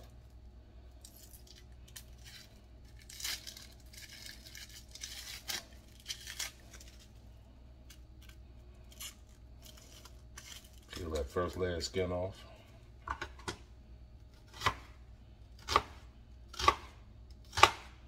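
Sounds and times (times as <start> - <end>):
onion skin crackling and tearing: 1.0 - 11.6.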